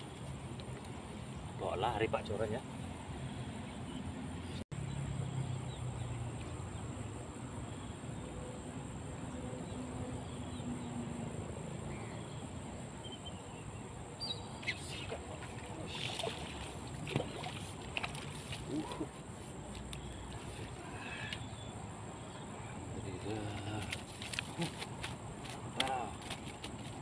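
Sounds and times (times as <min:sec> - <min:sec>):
short rustles and clicks: 0:23.5 - 0:27.0.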